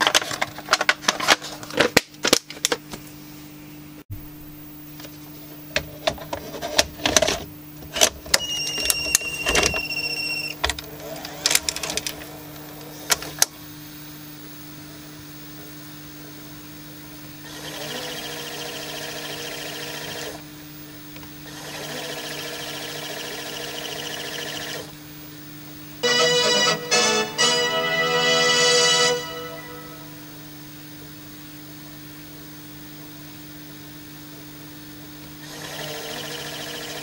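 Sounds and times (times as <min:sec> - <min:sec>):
steady hum: 0:04.1 - 0:09.2
brief high whine: 0:26.0 - 0:30.4.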